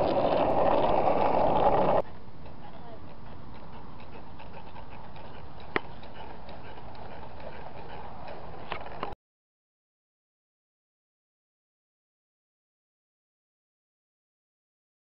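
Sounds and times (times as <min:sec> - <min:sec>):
outdoor background noise: 0:00.0 - 0:09.2.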